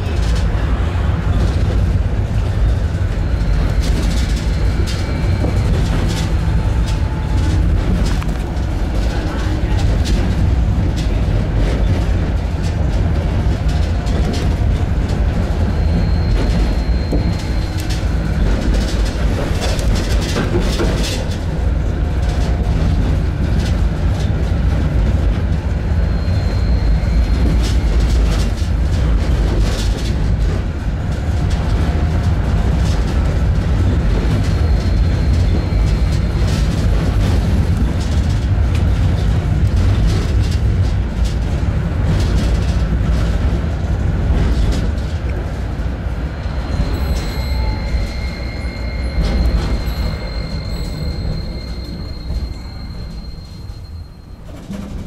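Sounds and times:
tram wheels rumbling on rail: 0:00.0 - 0:55.0
wheel squeals: 0:02.3 - 0:09.8, 0:15.3 - 0:21.5, 0:25.7 - 0:28.7, 0:32.8 - 0:38.4, 0:46.4 - 0:55.0.

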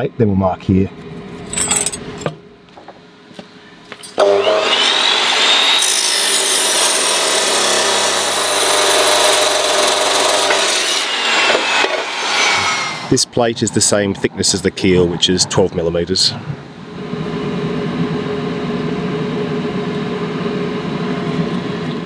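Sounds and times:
chop saw whining: 0:04.1 - 0:13.2
saw disc grinding through steel: 0:04.2 - 0:13.1.

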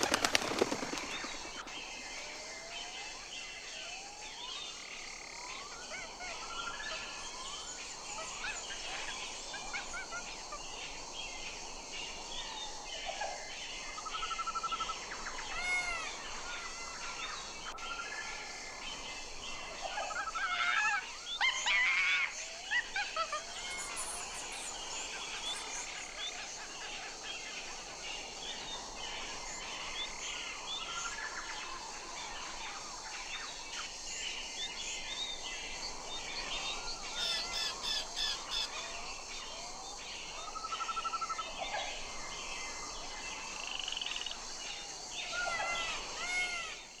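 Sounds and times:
outdoor hiss: 0:00.0 - 0:02.7, 0:23.4 - 0:40.6
birds chirping and trilling: 0:00.0 - 0:03.6, 0:13.8 - 0:47.0.

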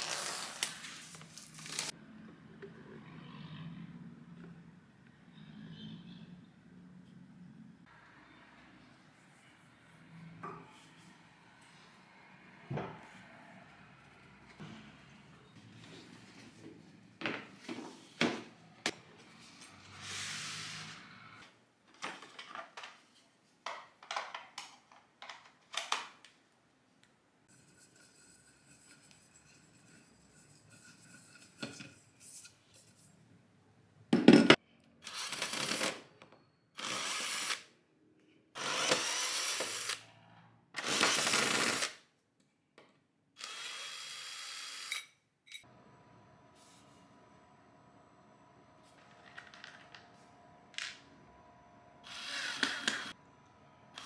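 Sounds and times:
cordless drill running: 0:36.8 - 0:37.6, 0:38.6 - 0:40.0, 0:43.4 - 0:44.9.

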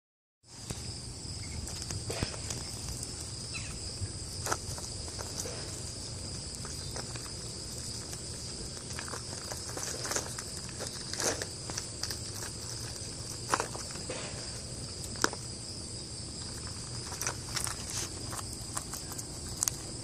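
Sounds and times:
insects droning: 0:00.4 - 0:20.0
peanut shells clicking and rustling: 0:04.4 - 0:15.5, 0:16.4 - 0:20.0.

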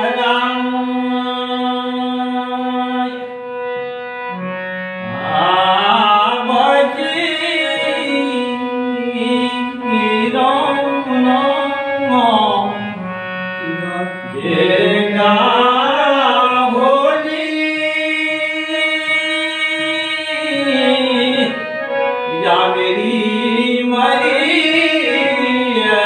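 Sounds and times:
man singing folk song: 0:13.7 - 0:21.6, 0:22.3 - 0:26.0.

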